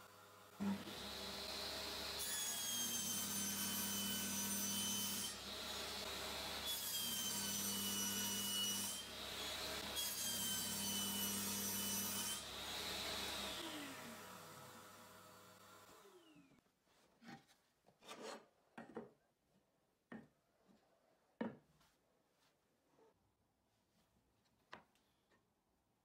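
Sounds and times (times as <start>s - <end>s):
table saw cutting wood: 0.1s - 16.6s.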